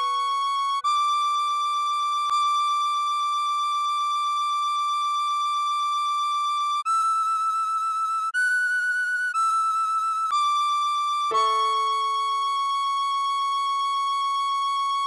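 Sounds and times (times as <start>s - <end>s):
tin whistle: 6.8s - 15.0s.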